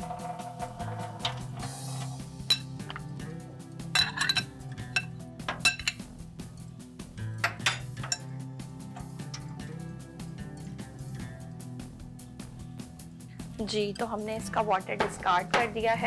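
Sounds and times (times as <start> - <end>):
utensils and dishes clinking: 0.0 - 6.7, 7.3 - 11.0
background music: 0.0 - 16.0.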